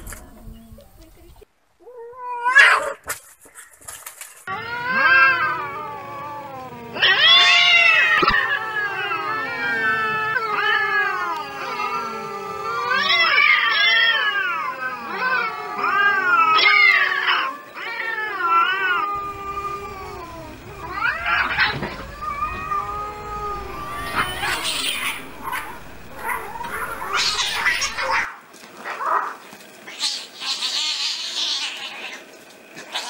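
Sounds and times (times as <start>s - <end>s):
cats yowling and fighting: 1.8s - 3.2s, 4.5s - 33.0s.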